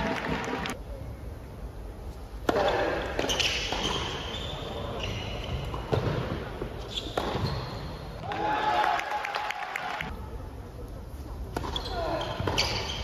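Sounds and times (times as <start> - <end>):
tennis ball struck by racket: 7.2 - 7.5.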